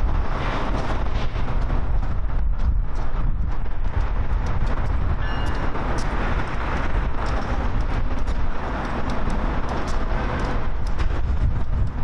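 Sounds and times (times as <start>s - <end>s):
heavy vehicle rumbling: 0.0s - 12.0s
faint high squeal: 5.2s - 5.7s.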